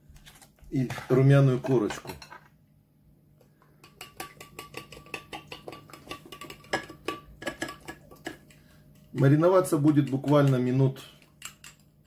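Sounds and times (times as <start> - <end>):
metal spoon clinking against bowl: 3.8 - 8.5, 9.2 - 11.9.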